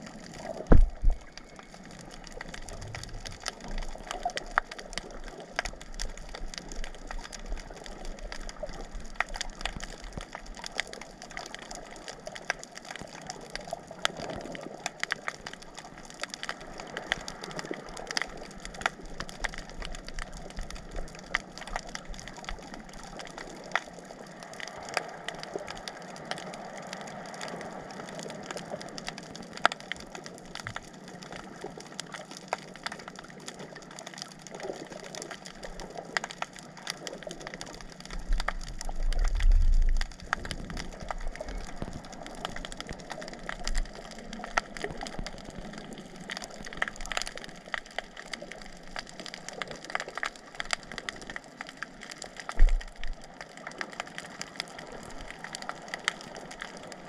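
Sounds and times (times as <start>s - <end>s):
crackle of small clicks underwater: 0.0s - 57.0s
low rumble: 0.5s - 1.8s.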